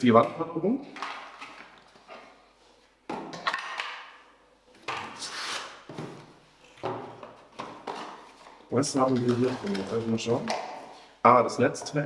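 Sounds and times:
plastic bag rustling: 8.2s - 10.5s.

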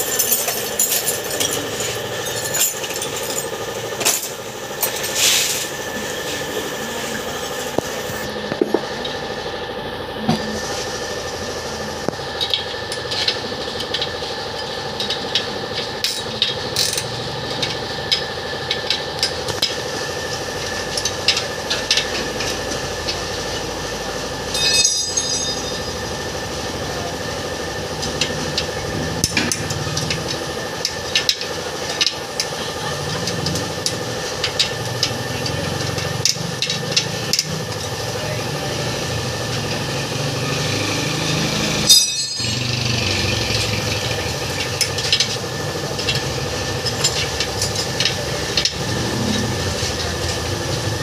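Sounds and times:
engine running: 0.0s - 51.0s
short metallic ringing: 24.5s - 26.0s, 41.8s - 42.8s.

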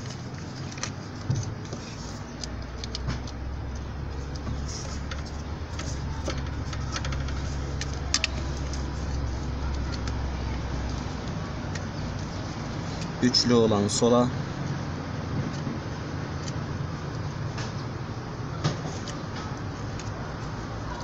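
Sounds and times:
small clicks and plastic rattles: 2.4s - 13.1s.

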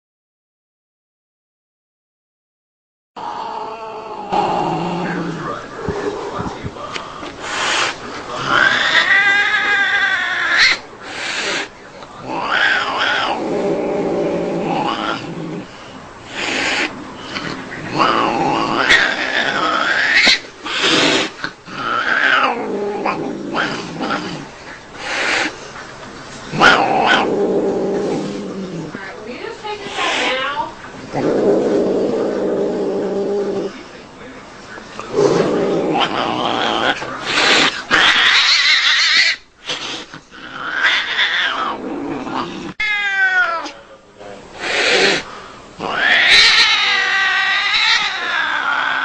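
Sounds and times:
cats yowling and growling: 3.2s - 6.4s, 7.5s - 15.7s, 16.3s - 25.6s, 26.5s - 29.0s, 35.1s - 43.9s, 44.6s - 49.0s
cat hissing: 7.4s - 25.8s, 26.5s - 29.1s, 29.7s - 33.8s, 35.1s - 43.8s, 44.5s - 49.0s
cat crying: 8.5s - 10.8s, 37.9s - 39.4s, 40.6s - 41.8s, 42.8s - 43.8s, 45.8s - 49.0s
cat meowing: 8.5s - 10.8s, 42.8s - 43.8s, 45.9s - 49.0s.

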